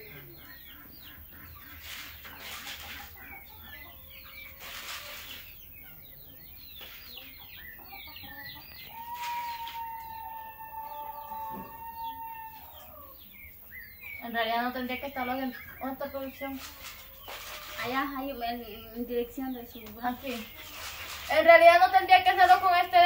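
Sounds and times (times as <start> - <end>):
chickens clucking: 0.0 - 23.0
rooster crowing: 8.9 - 13.2.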